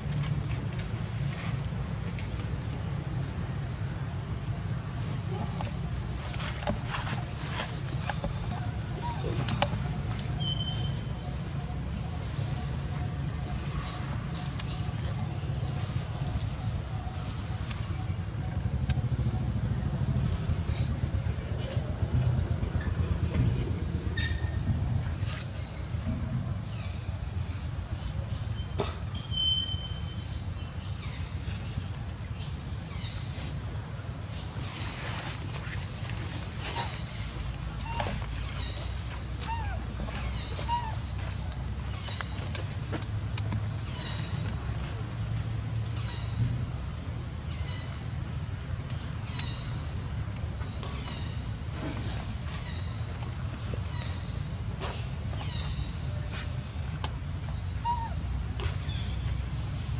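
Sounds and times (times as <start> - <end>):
steady low rumble: 0.0 - 28.7
high-pitched bird calls: 37.8 - 42.6, 57.6 - 59.1.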